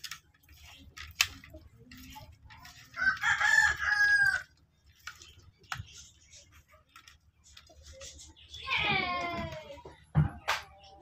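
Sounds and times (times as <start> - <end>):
rooster crowing: 3.0 - 4.5.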